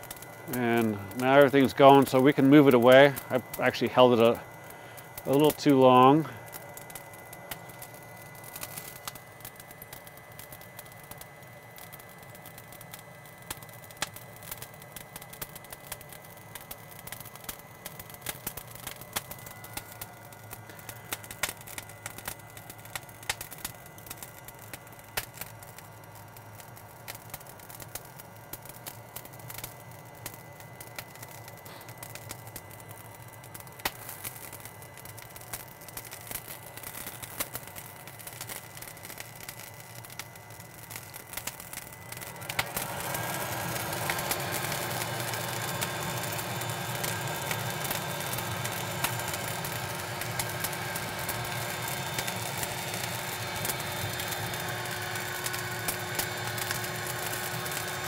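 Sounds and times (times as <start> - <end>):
charcoal crackling and popping: 0.0 - 58.0
hot-air lighter blowing hum: 0.0 - 58.0.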